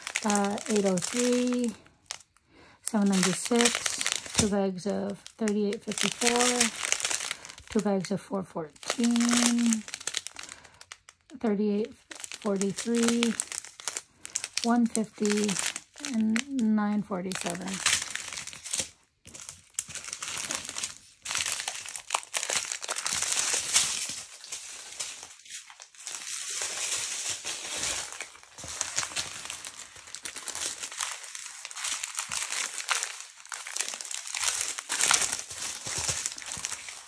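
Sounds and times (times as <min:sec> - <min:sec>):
plastic bags crinkling: 0:00.0 - 0:37.0.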